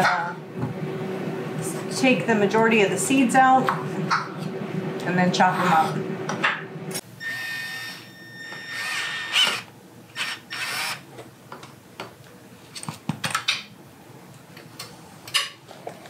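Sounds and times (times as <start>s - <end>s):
cordless drill running: 7.2s - 11.0s.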